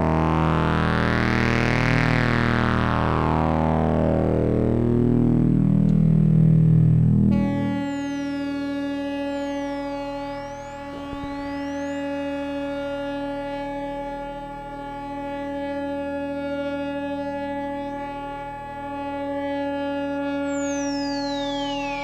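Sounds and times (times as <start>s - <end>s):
steady electronic synthesizer tones: 0.0s - 22.0s.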